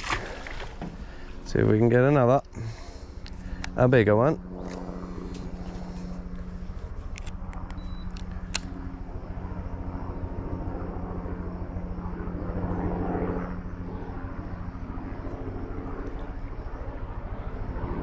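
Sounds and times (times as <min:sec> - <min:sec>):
boat motor humming: 0:00.0 - 0:09.2
sharp clicks: 0:07.1 - 0:08.8.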